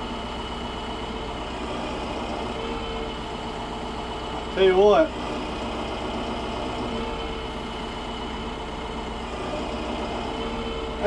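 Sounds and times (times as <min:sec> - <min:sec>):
tractor diesel engine running: 0:00.0 - 0:11.0.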